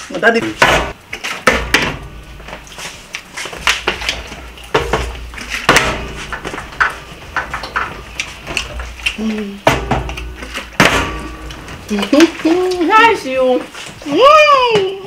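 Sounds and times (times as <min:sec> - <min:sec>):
plastic bottle landing on glass: 0:03.7 - 0:09.0, 0:09.6 - 0:11.8.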